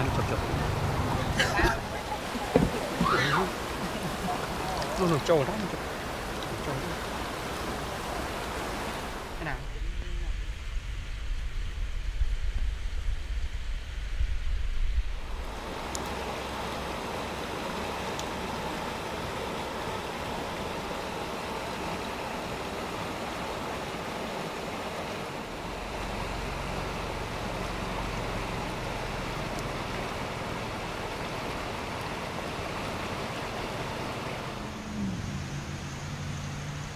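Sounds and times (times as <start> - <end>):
steady rushing noise: 0.0 - 36.9.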